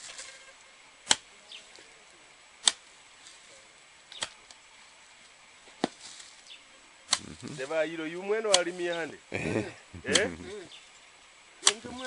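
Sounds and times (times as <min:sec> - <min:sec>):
hoe chopping into soil: 0:01.0 - 0:01.3, 0:02.6 - 0:02.9, 0:04.1 - 0:04.4, 0:05.8 - 0:06.3, 0:07.1 - 0:07.7, 0:10.0 - 0:10.4, 0:11.6 - 0:12.0.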